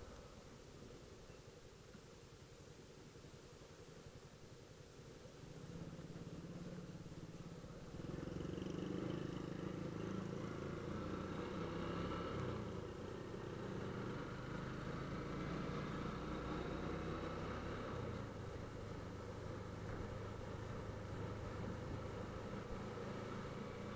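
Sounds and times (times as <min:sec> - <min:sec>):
motorcycle engine running: 0:05.6 - 0:23.9.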